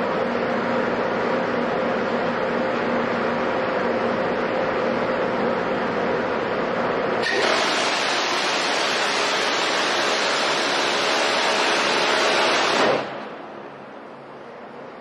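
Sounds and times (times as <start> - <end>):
gatling cannon firing burst: 11.9 - 13.2.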